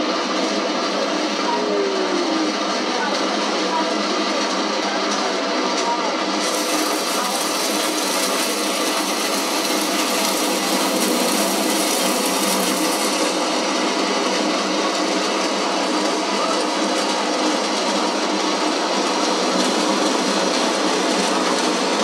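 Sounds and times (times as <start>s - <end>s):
hissing synthesizer noise music: 6.4s - 16.4s.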